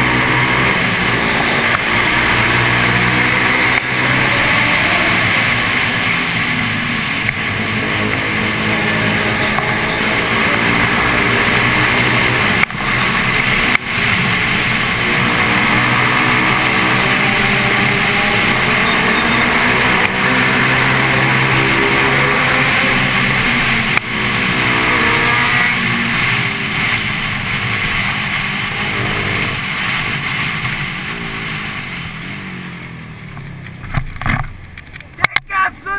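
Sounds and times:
motorcycle engine revving: 0:00.0 - 0:35.1
steady rushing noise: 0:00.0 - 0:35.9.

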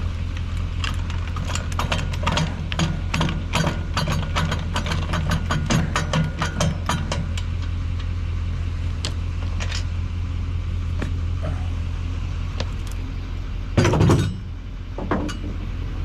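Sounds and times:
diesel pickup truck idling: 0:00.0 - 0:16.0
metal clacks: 0:00.8 - 0:07.5
trailer jack cranking clicks: 0:00.8 - 0:08.1
loud clunk: 0:13.8 - 0:15.6.

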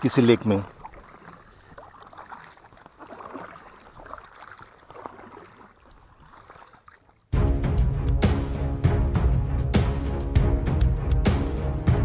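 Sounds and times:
water lapping against kayak: 0:00.0 - 0:07.4.

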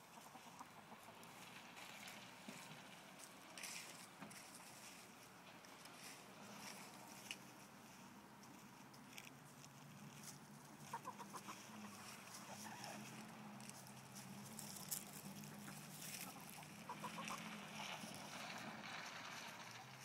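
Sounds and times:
hens clucking: 0:00.0 - 0:02.7, 0:10.0 - 0:18.9
scratching in dry leaves: 0:00.0 - 0:20.0.

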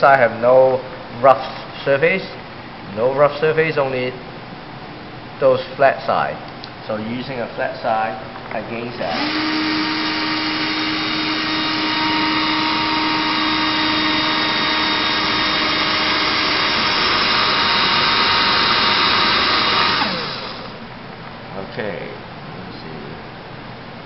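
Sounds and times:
cordless drill whining: 0:09.0 - 0:20.8.

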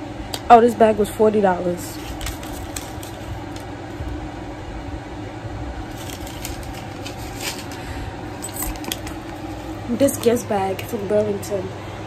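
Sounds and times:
steady background hum: 0:00.0 - 0:12.0
paper receipt crinkling: 0:01.9 - 0:03.7, 0:05.9 - 0:10.3.

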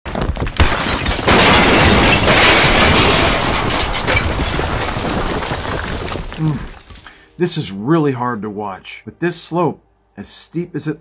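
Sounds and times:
rocks crashing and tumbling: 0:00.1 - 0:07.3.

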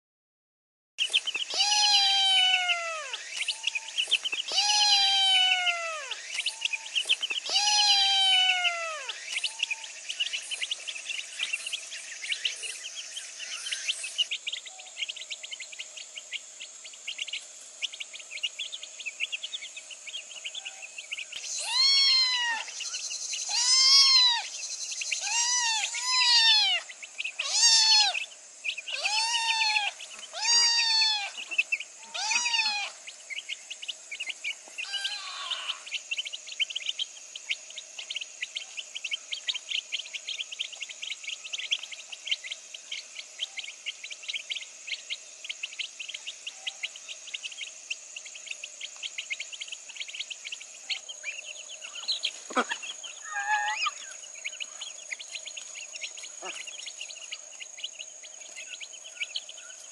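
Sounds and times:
rapid high-pitched chirping: 0:01.0 - 0:59.9
kitten meowing: 0:01.5 - 0:03.2, 0:04.5 - 0:06.2, 0:07.5 - 0:09.1, 0:21.6 - 0:22.7, 0:23.5 - 0:24.4, 0:27.4 - 0:28.2, 0:29.0 - 0:31.3, 0:32.1 - 0:32.9.

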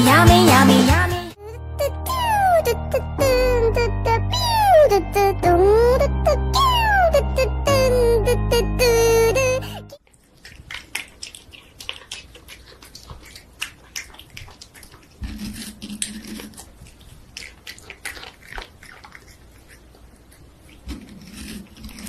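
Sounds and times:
cat licking and chewing: 0:10.0 - 0:22.0.

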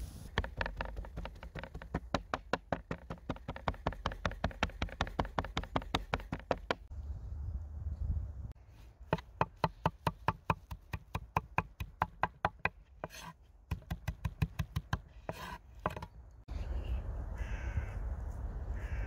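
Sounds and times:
outdoor background hiss: 0:00.0 - 0:01.1.

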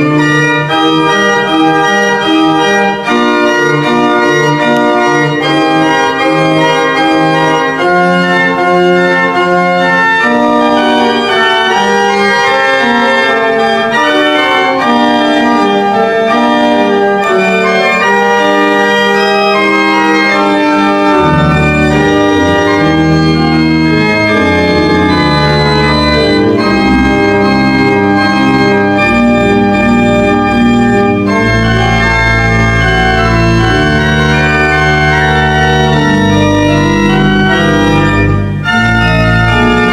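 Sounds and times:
pipe organ chords: 0:00.0 - 0:39.9
deep pedal bass notes: 0:21.0 - 0:39.9.

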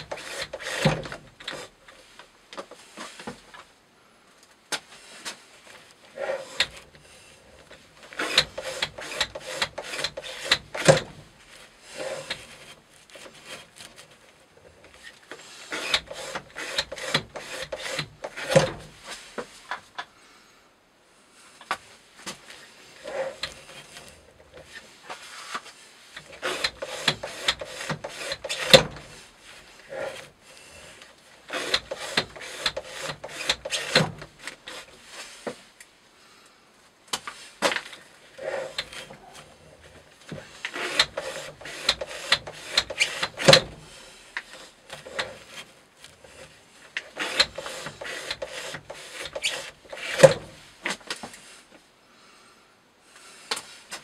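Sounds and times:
knife cutting through rope: 0:00.0 - 0:01.7, 0:08.0 - 0:11.1, 0:15.4 - 0:19.2, 0:23.0 - 0:35.6, 0:40.3 - 0:51.0.

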